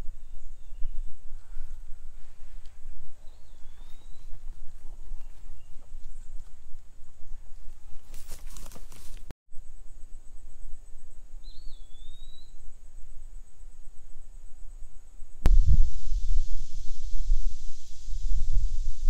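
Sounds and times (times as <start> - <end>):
wind rumble on microphone: 0.0 - 8.3, 10.5 - 19.0
rustling: 1.6 - 9.3
high insect drone: 9.6 - 19.0
bird call: 11.4 - 12.6.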